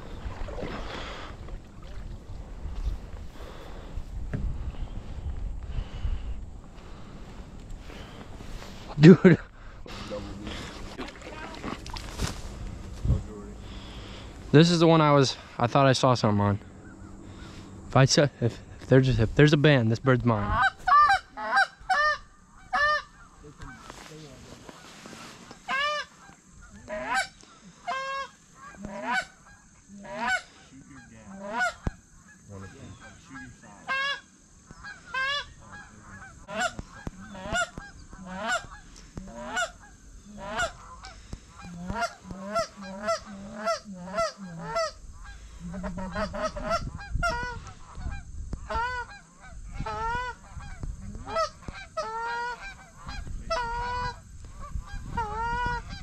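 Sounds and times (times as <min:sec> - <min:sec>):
geese honking: 0:20.3 - 0:56.0.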